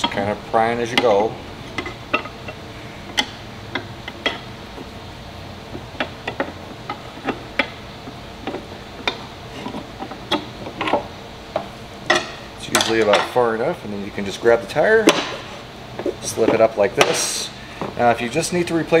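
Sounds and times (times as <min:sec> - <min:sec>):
tire spoons clicking on metal rim: 0:00.0 - 0:04.5.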